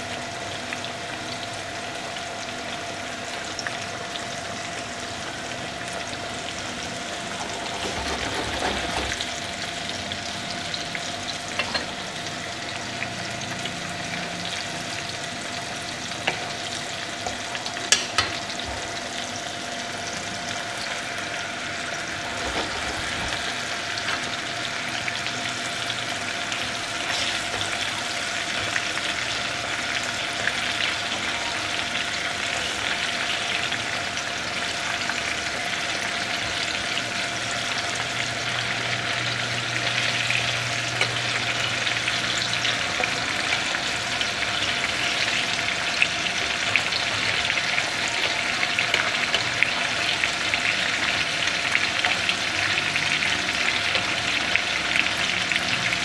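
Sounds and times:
chicken sizzling in hot oil: 0:00.0 - 0:56.0.

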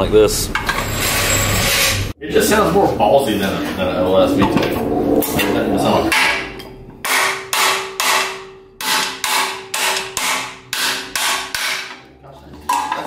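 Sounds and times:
hammer striking metal: 0:04.4 - 0:12.1.

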